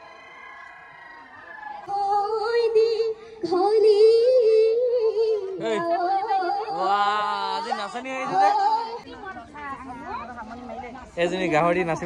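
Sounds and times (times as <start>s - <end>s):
woman singing unaccompanied: 1.9s - 7.2s, 8.2s - 9.2s.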